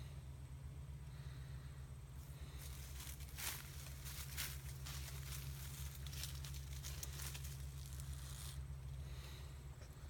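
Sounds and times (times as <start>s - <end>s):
low hum: 0.0s - 10.0s
dry leaves rustling: 2.2s - 9.3s.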